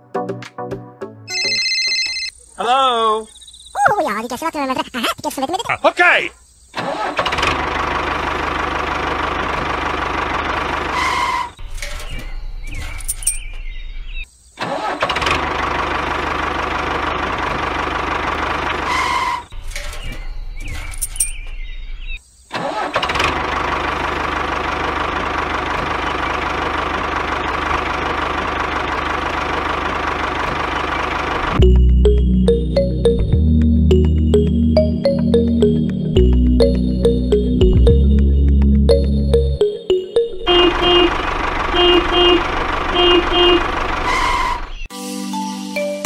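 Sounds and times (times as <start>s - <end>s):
tractor engine running: 7.1s - 13.6s, 15.0s - 19.8s, 23.0s - 44.9s.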